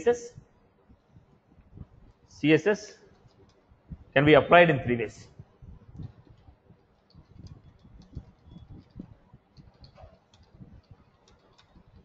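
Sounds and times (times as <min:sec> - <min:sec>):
computer keyboard typing: 0:06.0 - 0:12.0.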